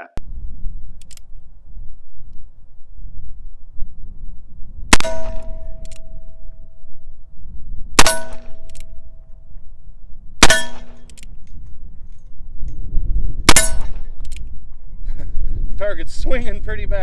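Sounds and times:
steel target ringing: 5.0s - 6.3s, 8.0s - 9.2s, 10.4s - 11.0s, 13.5s - 14.1s.

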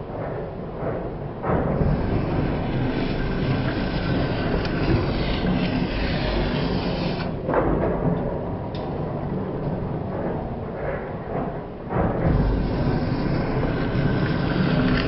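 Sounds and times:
machine running noise: 0.0s - 15.0s
metal shaper scraping steel: 1.8s - 7.4s, 12.3s - 15.0s.

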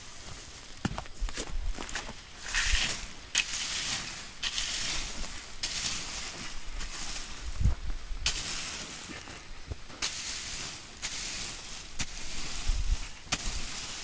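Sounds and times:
rake dragging through sizzling char: 0.0s - 14.0s.

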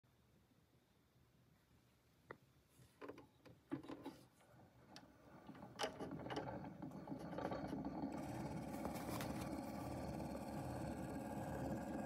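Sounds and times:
tonearm clicks and knocks: 4.9s - 9.6s.

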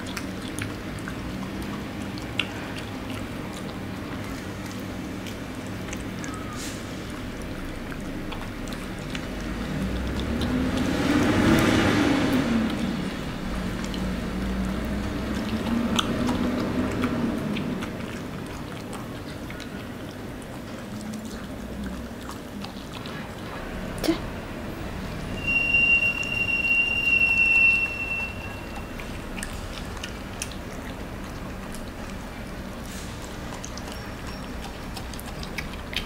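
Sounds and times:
dog lapping from spoon: 0.0s - 23.7s, 28.7s - 36.0s.

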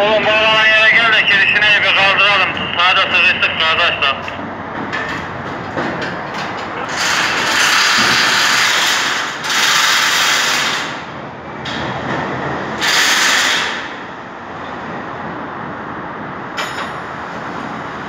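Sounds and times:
low background noise: 0.0s - 7.5s.

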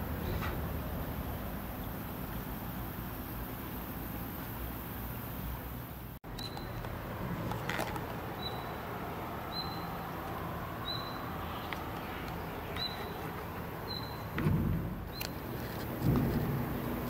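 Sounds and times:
river water rushing: 6.9s - 17.0s.

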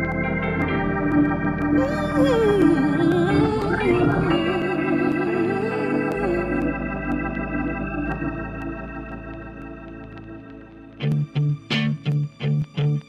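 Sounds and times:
wavering melody line: 0.0s - 9.6s
organ-like chords: 0.0s - 13.0s.

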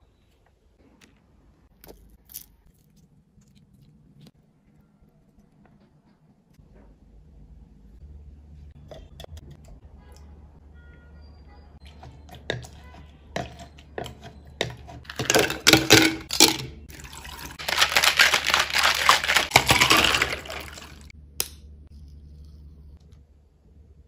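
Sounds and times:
shaker cup rattling and sloshing: 13.4s - 21.1s.

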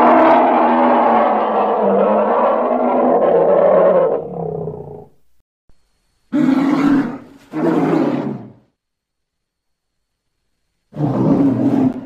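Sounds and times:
creature roaring: 0.0s - 5.1s, 11.0s - 12.0s.

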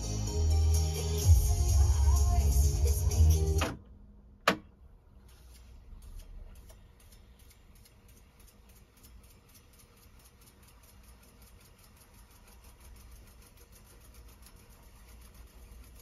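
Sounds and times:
rapid regular ticking: 5.6s - 16.0s
tape reels fast-winding: 5.6s - 16.0s.

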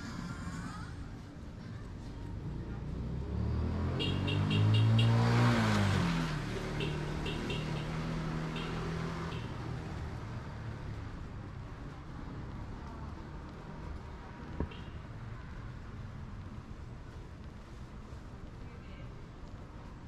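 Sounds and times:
vehicle passing by: 2.2s - 11.2s.

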